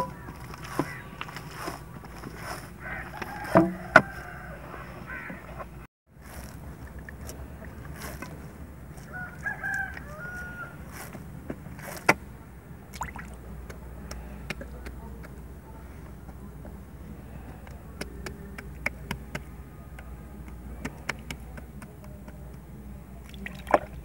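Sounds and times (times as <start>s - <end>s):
bird calls: 0.0s - 1.8s, 2.4s - 5.7s
dough kneaded in metal basin: 13.4s - 24.0s.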